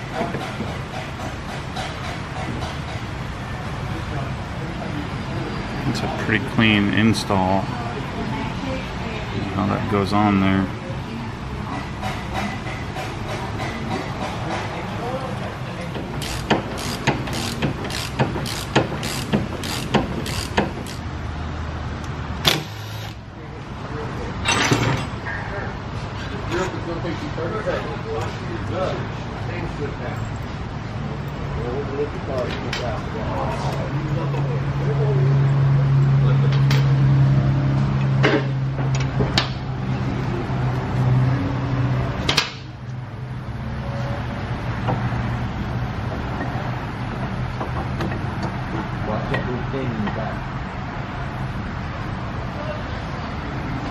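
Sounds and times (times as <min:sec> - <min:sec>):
ratchet wrench clicking: 0:16.2 - 0:21.1.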